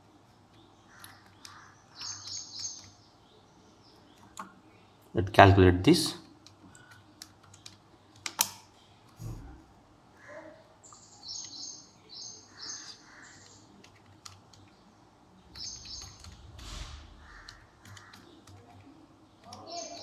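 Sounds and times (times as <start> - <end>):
calculator keys tapping: 6.3 - 8.6, 13.4 - 14.8, 17.4 - 20.0.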